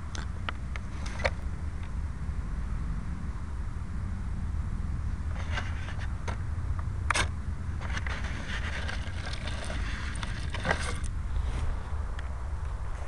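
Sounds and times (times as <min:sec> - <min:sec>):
steady low rumble: 0:00.0 - 0:13.0
handling clicks knocks and scrapes: 0:00.8 - 0:01.4, 0:05.3 - 0:06.4, 0:07.1 - 0:12.4.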